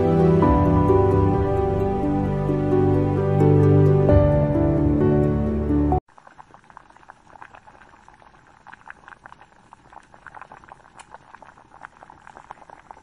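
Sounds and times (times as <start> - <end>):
kettle crackling and ticking: 6.1 - 13.0.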